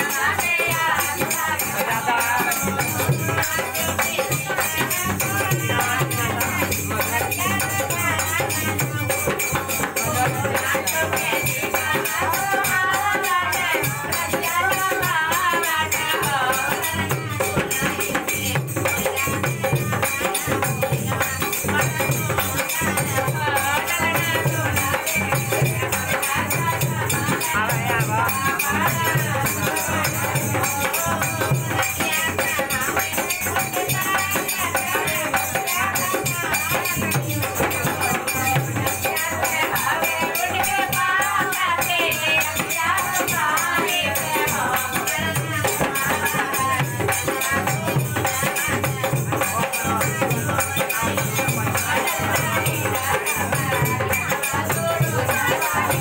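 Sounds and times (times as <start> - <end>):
hand drum beat: 0.0 - 56.0.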